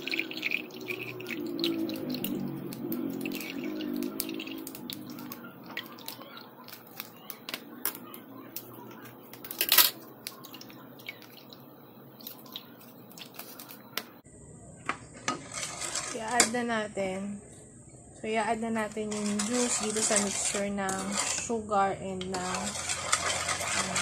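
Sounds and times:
juice dripping: 0:00.0 - 0:14.2
plastic pouch crinkling: 0:12.2 - 0:14.1.

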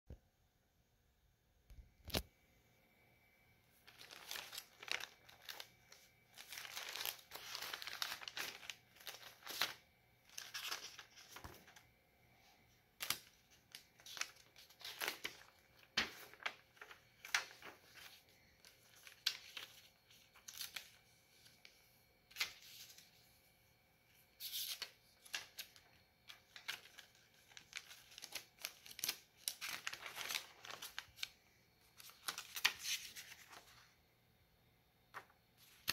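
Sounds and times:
notebook pages turning: 0:03.9 - 0:11.9, 0:13.0 - 0:21.0, 0:24.4 - 0:33.8.

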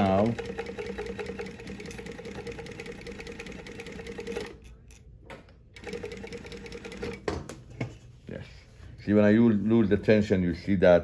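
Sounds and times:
sewing machine stitching: 0:00.0 - 0:04.6, 0:05.8 - 0:07.3.

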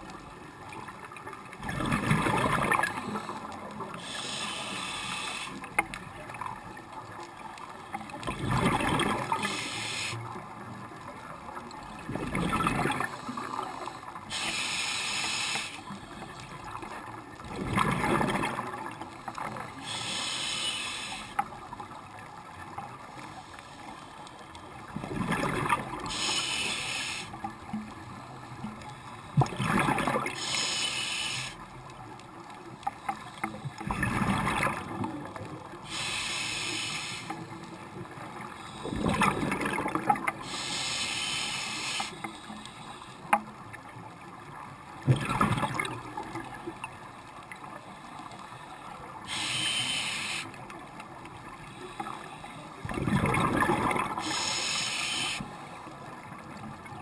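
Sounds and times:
exhaled bubbles rushing: 0:01.6 - 0:03.0, 0:08.3 - 0:09.4, 0:12.1 - 0:13.1, 0:17.4 - 0:18.9, 0:25.0 - 0:26.1, 0:29.4 - 0:30.4, 0:33.8 - 0:35.2, 0:38.9 - 0:40.4, 0:52.8 - 0:54.3
scuba regulator hissing inhalations: 0:02.8 - 0:05.8, 0:09.3 - 0:10.3, 0:13.0 - 0:16.5, 0:19.6 - 0:21.4, 0:26.0 - 0:27.4, 0:30.4 - 0:31.6, 0:35.8 - 0:37.7, 0:40.4 - 0:43.3, 0:47.9 - 0:50.6, 0:54.0 - 0:55.6.

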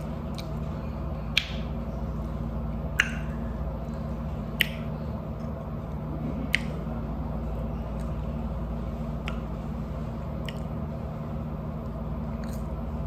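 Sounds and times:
steady low hum: 0:00.0 - 0:13.0
wet mouth smacks eating: 0:00.2 - 0:00.7, 0:01.3 - 0:01.7, 0:02.9 - 0:05.6, 0:06.3 - 0:06.9, 0:09.2 - 0:09.5, 0:10.4 - 0:10.8, 0:11.8 - 0:12.8.

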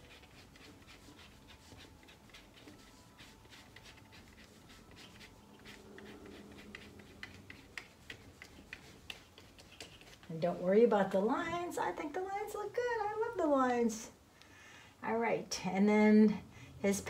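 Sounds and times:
paintbrush ticking and scratching: 0:00.0 - 0:11.2.

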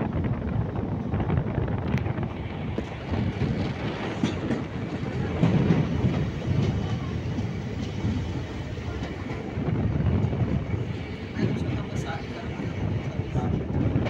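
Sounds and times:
train rumble: 0:00.0 - 0:14.0
wheels clattering over track: 0:02.8 - 0:09.5.

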